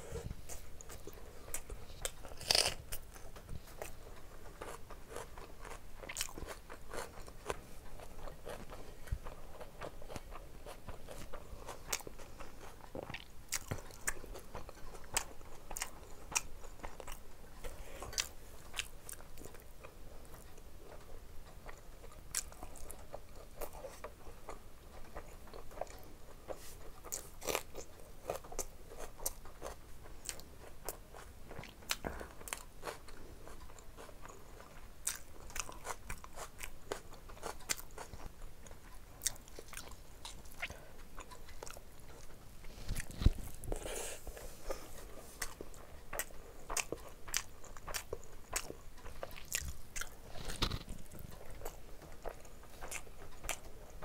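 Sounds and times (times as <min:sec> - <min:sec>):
wet chewing and lip smacks: 0:45.4 - 0:54.0.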